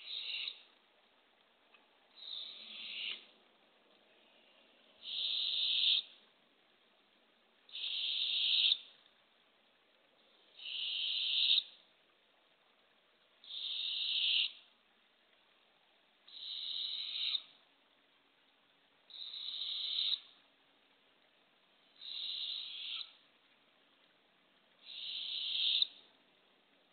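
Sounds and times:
owlet raspy hissing call: 0:02.2 - 0:03.1, 0:05.0 - 0:06.0, 0:07.7 - 0:08.8, 0:10.6 - 0:11.6, 0:13.5 - 0:14.6, 0:22.0 - 0:23.1, 0:24.8 - 0:25.9.

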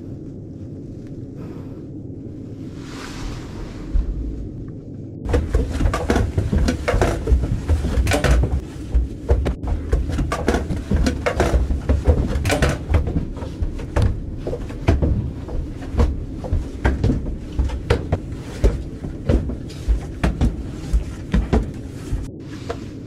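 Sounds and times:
low rumble of handling noise: 0:00.0 - 0:23.0
knocks of handled gear: 0:05.3 - 0:22.3
footsteps: 0:05.3 - 0:23.0.

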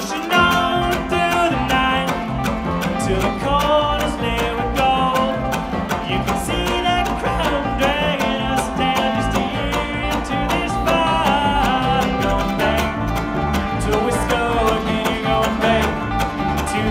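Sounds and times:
bluegrass band playing: 0:00.0 - 0:16.9.

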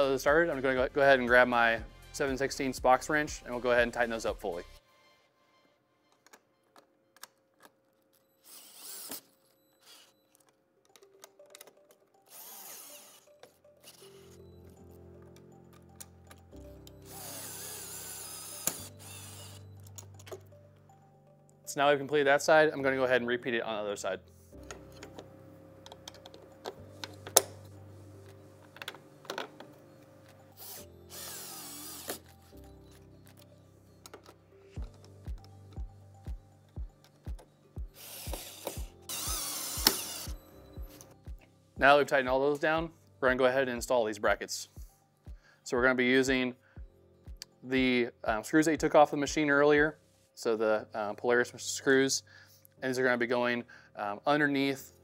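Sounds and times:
cordless drill driving screws: 0:08.4 - 0:10.1, 0:12.3 - 0:14.1, 0:17.0 - 0:19.6, 0:30.5 - 0:32.5, 0:38.0 - 0:40.4
clicks of tool and fasteners: 0:09.1 - 0:12.2, 0:19.8 - 0:20.5, 0:24.6 - 0:30.4, 0:32.0 - 0:35.8.

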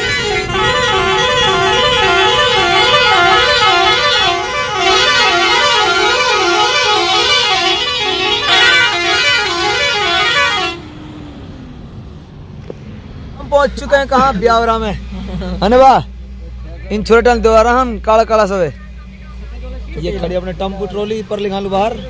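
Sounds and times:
truck musical horn two-note tune: 0:00.0 - 0:10.9.

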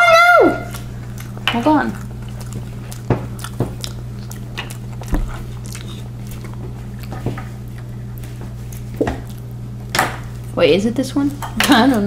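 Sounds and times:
low electrical hum: 0:00.0 - 0:12.0
chewing soft candy: 0:00.6 - 0:09.6.

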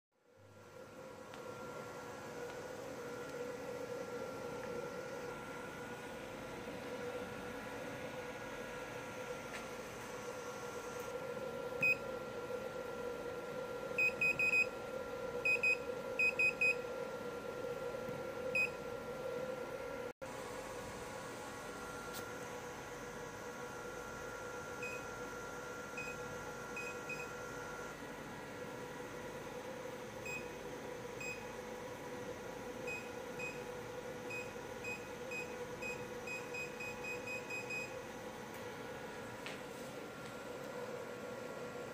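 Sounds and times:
steady hum: 0:00.2 - 0:41.9.

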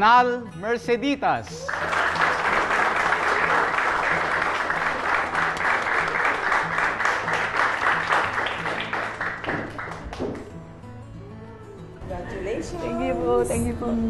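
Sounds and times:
people clapping: 0:01.5 - 0:10.7
soft background music: 0:05.0 - 0:14.0.

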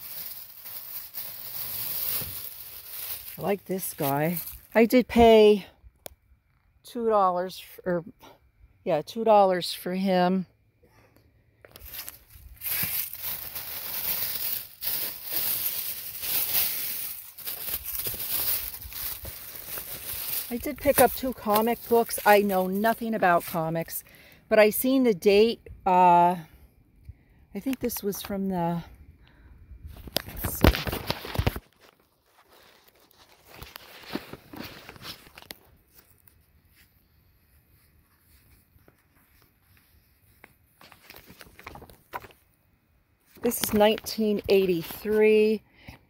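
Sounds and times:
rustling and crinkling: 0:00.0 - 0:04.8, 0:11.6 - 0:24.0, 0:29.9 - 0:42.5.

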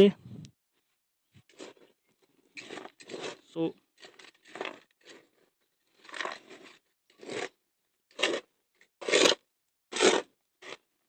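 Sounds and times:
metal scoop scraping through gravel: 0:02.5 - 0:07.5, 0:08.2 - 0:10.8.

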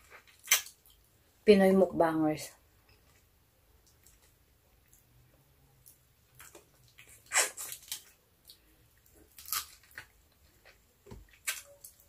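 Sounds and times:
sucking and chewing mouth sounds: 0:03.8 - 0:11.8.

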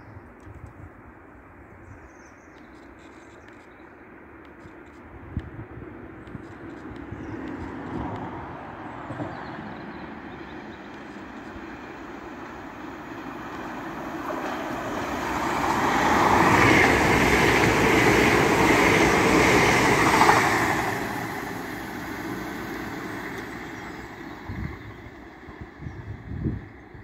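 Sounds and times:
train passing at speed: 0:05.1 - 0:27.0.

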